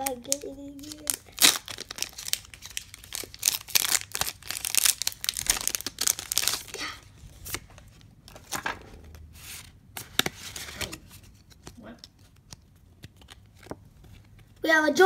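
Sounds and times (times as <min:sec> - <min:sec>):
foil wrapper tearing and crinkling: 0:00.0 - 0:06.9.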